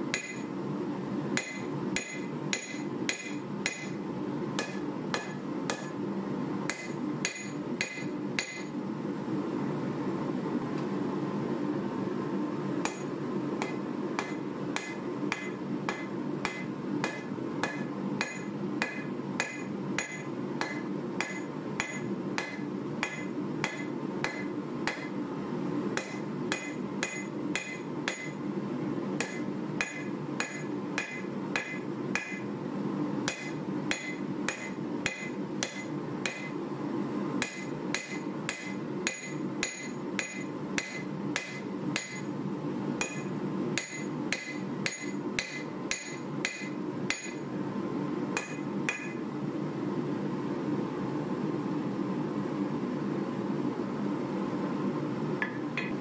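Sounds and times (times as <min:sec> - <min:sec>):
hammer striking blade on anvil: 0:00.1 - 0:00.5, 0:01.4 - 0:04.0, 0:04.6 - 0:06.0, 0:06.7 - 0:08.8, 0:12.8 - 0:25.2, 0:26.0 - 0:28.4, 0:29.2 - 0:32.5, 0:33.3 - 0:36.6, 0:37.4 - 0:42.3, 0:43.0 - 0:47.4, 0:48.4 - 0:49.2.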